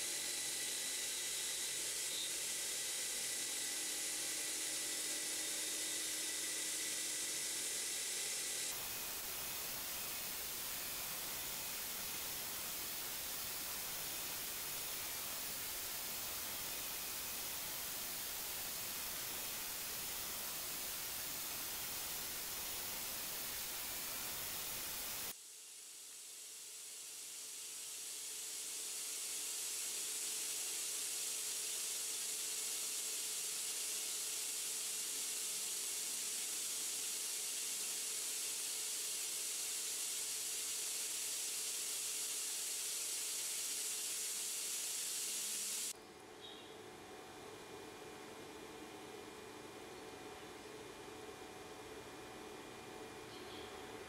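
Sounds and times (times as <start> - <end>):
bright hiss: 0.0 - 46.0
air blowing hiss: 8.7 - 25.3
faint steady hum: 45.9 - 54.0.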